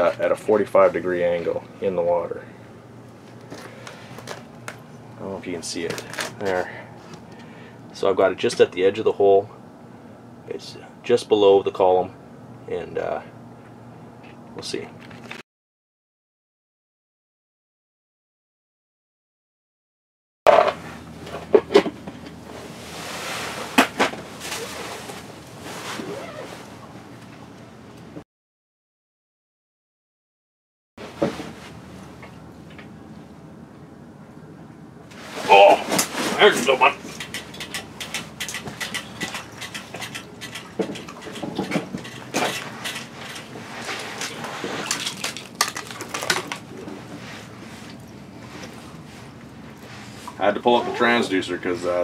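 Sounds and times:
clunk: 20.5 - 22.2
fishing gear clicking and rattling: 36.9 - 43.6.

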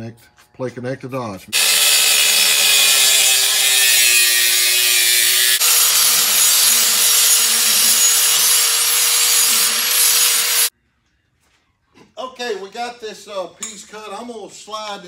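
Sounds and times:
angle grinder cutting steel: 1.6 - 10.7
grinder grinding pipe end: 1.6 - 10.7.

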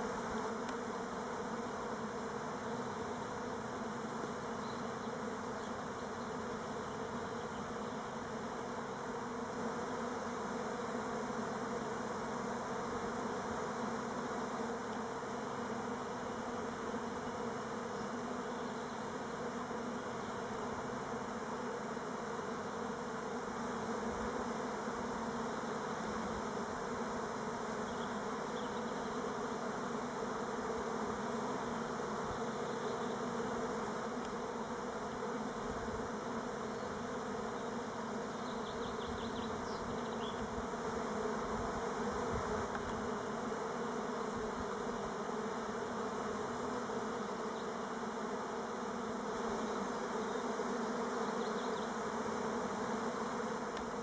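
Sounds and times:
bees buzzing: 0.0 - 54.0.

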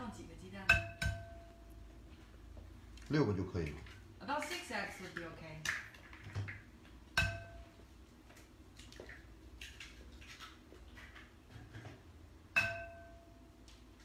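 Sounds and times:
eggs tapped on ceramic bowl: 0.6 - 1.6.

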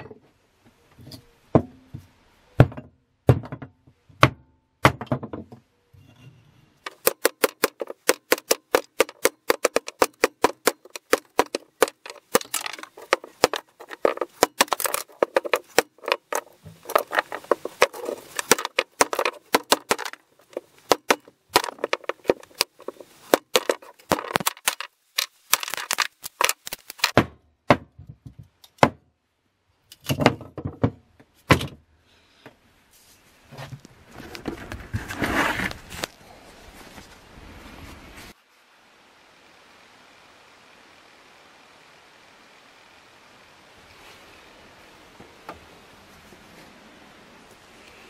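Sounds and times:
axe chopping wood: 6.9 - 28.0.

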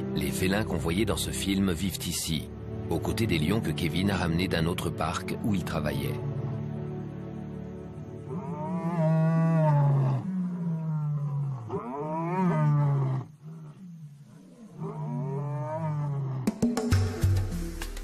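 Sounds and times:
lion roaring: 8.2 - 16.5.

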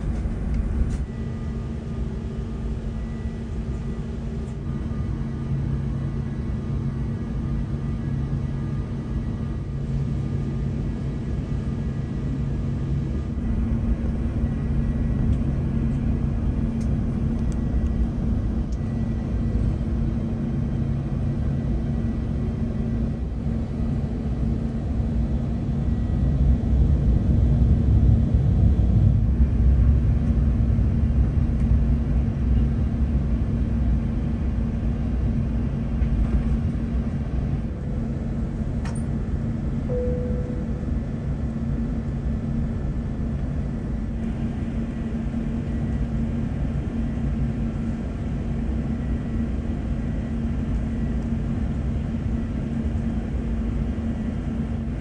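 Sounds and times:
aircraft cabin rumble: 0.0 - 55.0
constant hum: 0.0 - 55.0.

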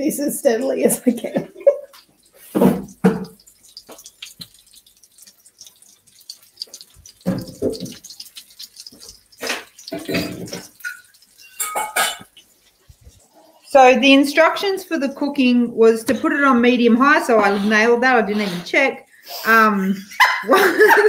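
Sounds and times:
chicken sizzling in hot oil: 0.8 - 15.6.

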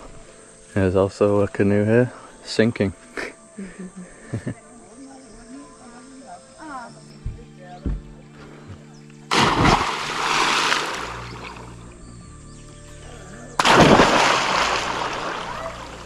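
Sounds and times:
background music: 0.0 - 16.0
people splashing into water: 9.3 - 11.7, 13.6 - 16.0.

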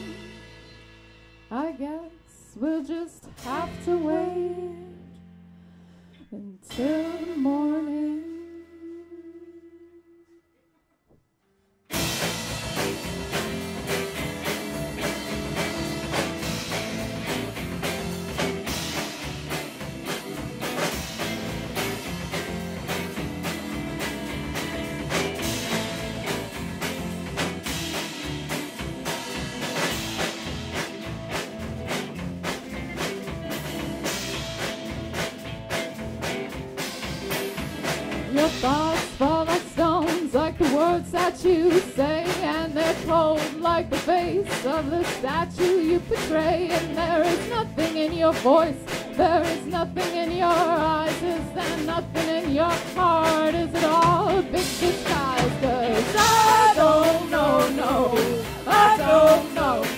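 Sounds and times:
person singing: 0.0 - 0.4, 1.5 - 5.0, 6.3 - 10.4, 38.3 - 59.9
live band music: 0.0 - 5.1, 6.7 - 9.7, 11.9 - 59.9
drum hits: 11.9 - 59.9.

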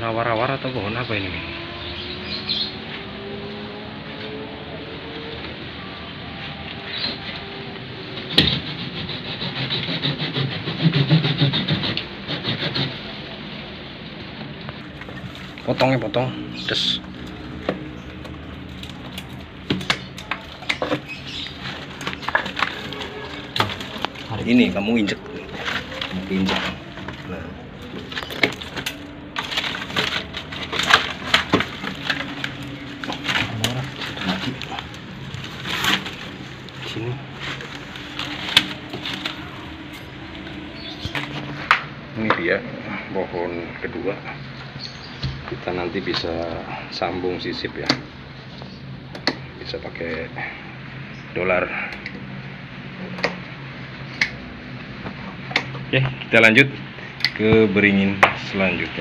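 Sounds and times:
hand saw cutting wood: 8.4 - 13.1, 17.6 - 39.4
dry leaves and twigs crunching: 14.8 - 42.0.

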